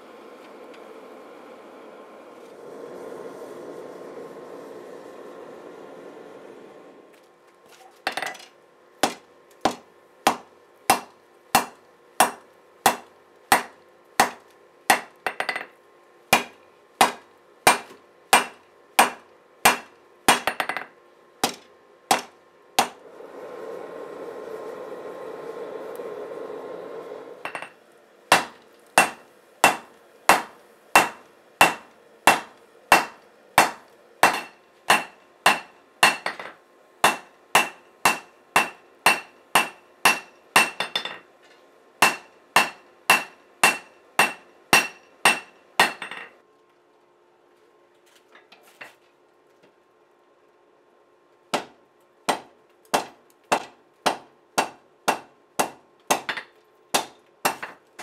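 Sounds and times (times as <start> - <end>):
forge running: 0.0 - 20.8, 21.4 - 46.1.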